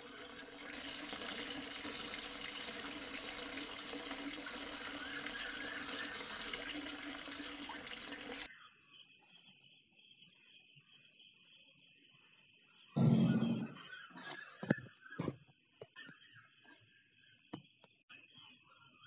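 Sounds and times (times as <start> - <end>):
water splashing from hose nozzle: 0.0 - 8.5.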